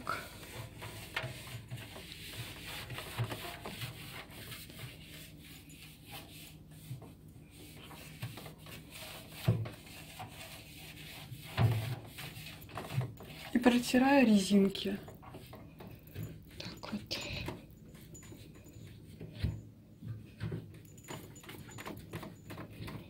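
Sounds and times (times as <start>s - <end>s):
cloth wiping metal drum: 0.0s - 15.6s.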